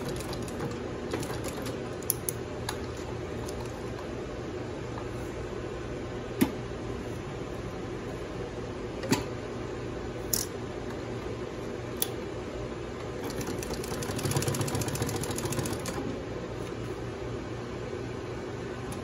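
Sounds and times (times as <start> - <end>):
sewing machine hum: 0.0 - 2.1, 13.2 - 16.2
sewing machine stitching: 13.2 - 16.0.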